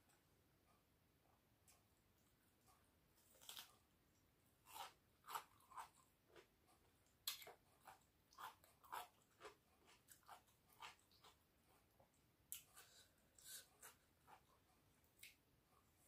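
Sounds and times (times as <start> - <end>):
crunching and chewing cucumber: 3.2 - 3.9, 4.6 - 11.9.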